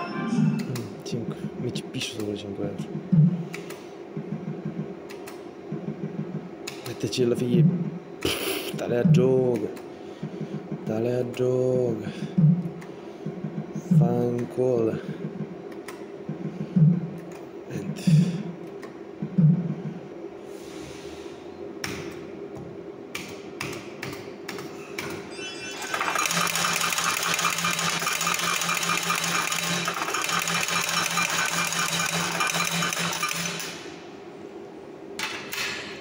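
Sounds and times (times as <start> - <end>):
steady low hum: 0.0 - 25.6, 26.5 - 36.0
low thumps: 3.0 - 3.4, 12.3 - 12.7, 16.2 - 17.2, 19.2 - 19.9
pulsing electronic rattle: 25.7 - 33.6.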